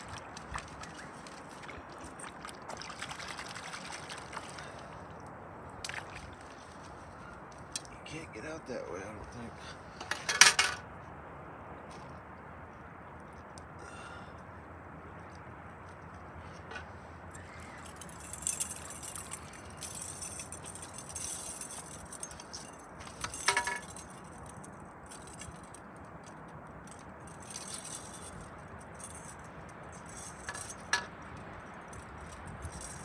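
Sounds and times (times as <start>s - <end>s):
fishing gear clinking on rock: 17.4s - 33.0s.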